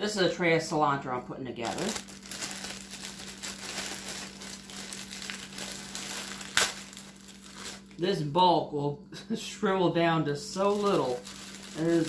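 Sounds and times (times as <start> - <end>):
plastic bag crinkling: 1.6 - 8.0, 10.5 - 12.0.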